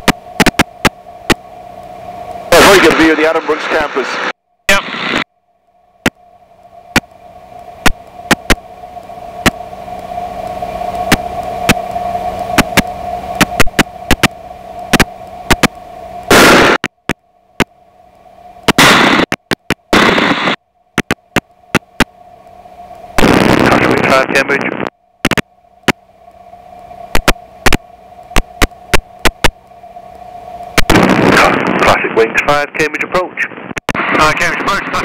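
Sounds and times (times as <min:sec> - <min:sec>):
sharp clicks and crackles: 0:00.0 - 0:02.4, 0:06.0 - 0:23.8, 0:24.4 - 0:29.7
radio hum and hiss: 0:00.0 - 0:35.0
bursts of rushing noise: 0:16.3 - 0:16.8, 0:18.8 - 0:20.6, 0:30.8 - 0:32.1.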